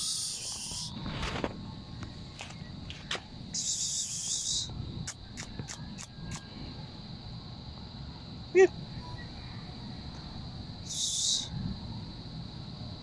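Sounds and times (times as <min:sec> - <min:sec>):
high insect buzz: 0:00.0 - 0:06.5, 0:10.8 - 0:11.5
insects chirring: 0:00.0 - 0:13.0.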